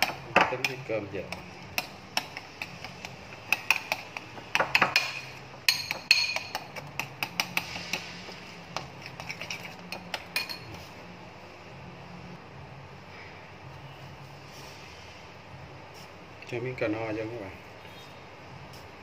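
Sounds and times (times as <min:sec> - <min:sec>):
metal spoon scraping ceramic bowl: 0:08.8 - 0:10.8.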